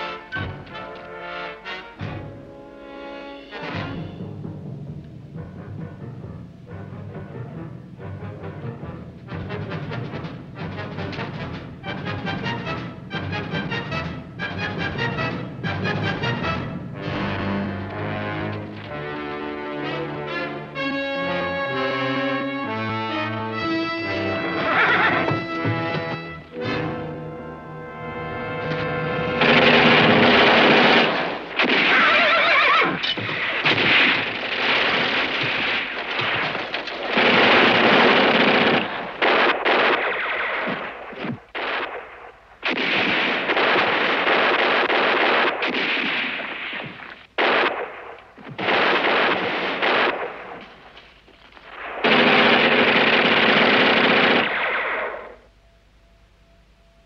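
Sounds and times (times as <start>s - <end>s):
machine-gun fire: 29.3s - 51.0s, 51.6s - 55.4s.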